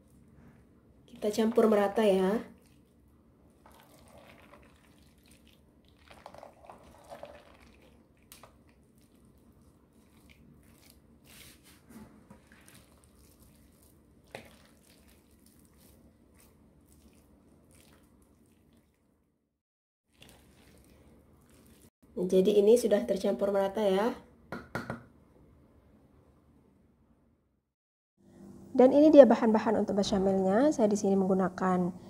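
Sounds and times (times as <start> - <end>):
spatula stirring food in pan: 2.6 - 19.0, 20.1 - 21.9.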